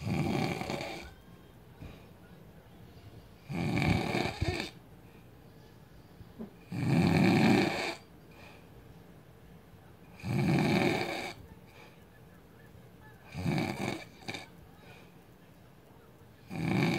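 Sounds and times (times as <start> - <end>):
man snoring loudly: 0.0 - 1.1, 3.5 - 4.8, 6.7 - 8.0, 10.2 - 11.4, 13.3 - 14.4, 16.5 - 16.9
quiet breathing: 0.0 - 6.5, 7.1 - 16.9.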